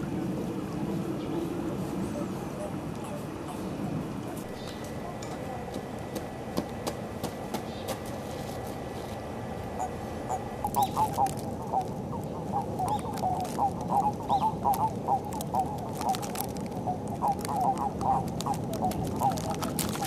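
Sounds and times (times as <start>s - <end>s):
toads croaking: 9.7s - 20.0s.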